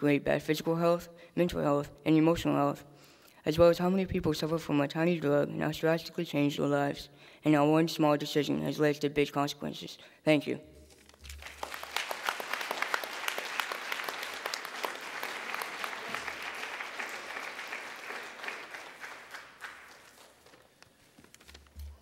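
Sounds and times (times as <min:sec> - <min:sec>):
audience applauding: 0:11.1 - 0:20.8.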